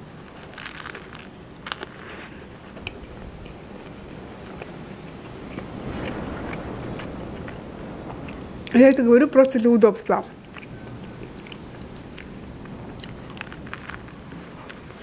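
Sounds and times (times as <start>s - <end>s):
crunchy bite into wrap: 0.0s - 7.6s, 12.9s - 15.0s
chewing: 0.3s - 8.8s, 10.3s - 15.0s
strong wind rushing: 5.6s - 9.3s.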